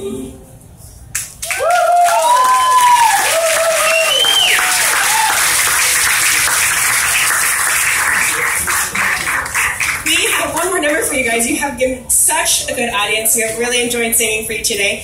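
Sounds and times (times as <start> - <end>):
whoops of cheering: 1.4 - 5.6
audience applause: 1.4 - 10.6.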